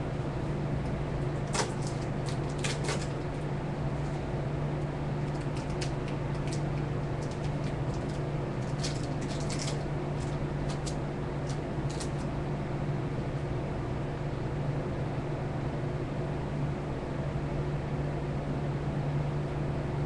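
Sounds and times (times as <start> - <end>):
low hum: 0.0 - 14.5
fishing gear clicks and rustles: 5.3 - 12.3.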